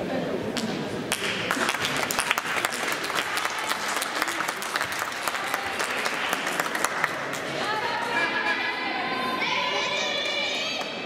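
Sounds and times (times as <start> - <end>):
spectators applauding: 1.1 - 7.8.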